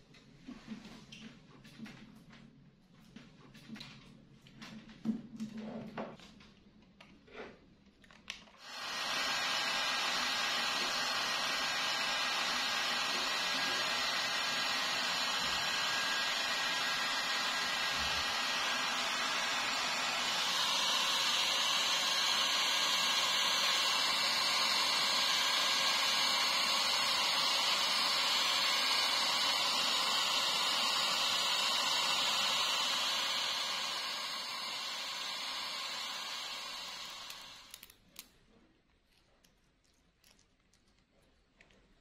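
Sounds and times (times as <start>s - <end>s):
hair dryer blowing: 8.6s - 37.9s.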